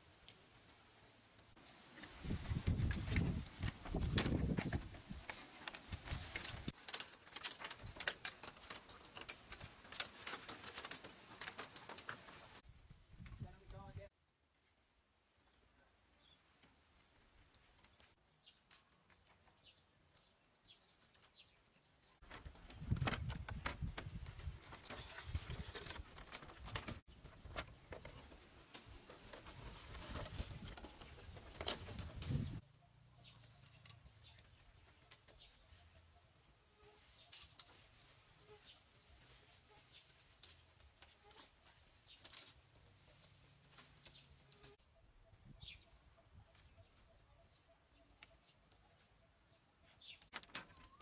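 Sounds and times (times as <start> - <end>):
wooden poles knocking and clacking: 2.5 - 12.6, 22.2 - 32.6.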